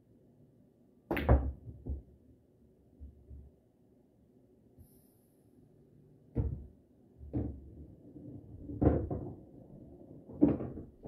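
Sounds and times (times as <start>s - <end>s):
pool balls knocking: 6.4s - 11.0s.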